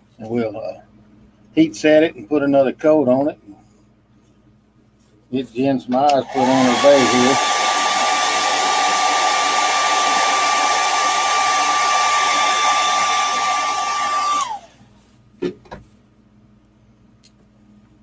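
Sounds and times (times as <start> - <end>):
hair dryer blowing with whine: 6.1 - 14.9
motor spinning down: 6.2 - 14.8.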